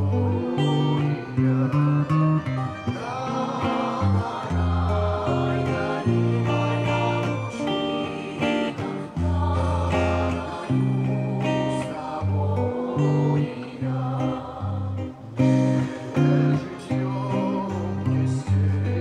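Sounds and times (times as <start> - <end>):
electric guitar slow melody: 0.0 - 19.0.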